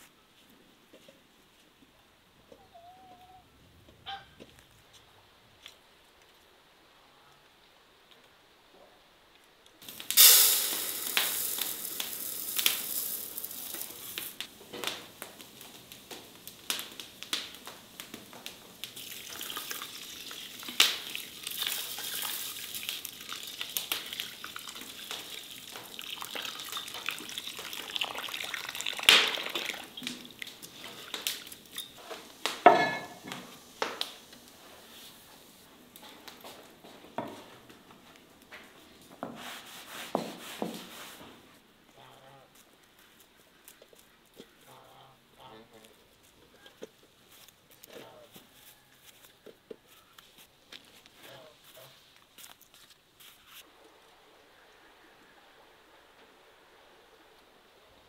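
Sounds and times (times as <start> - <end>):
dry rice poured into basin: 9.8 - 14.4, 19.0 - 31.6
water poured onto rice: 9.8 - 14.4, 18.8 - 32.0.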